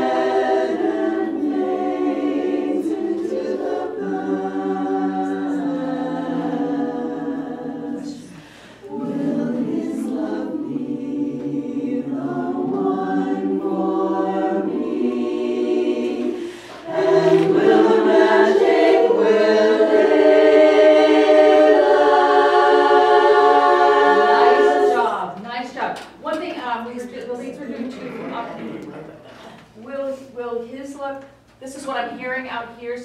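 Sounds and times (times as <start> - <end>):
women's chorus singing a cappella: 0.0 - 25.4.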